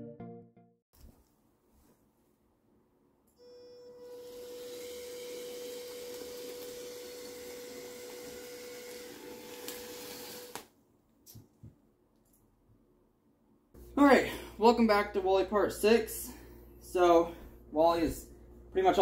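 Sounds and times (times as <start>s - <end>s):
small electric motors whirring: 3.7s - 10.7s.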